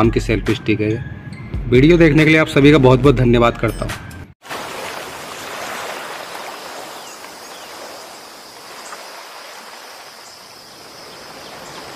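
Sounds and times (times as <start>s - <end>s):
sea waves washing in: 4.4s - 11.9s.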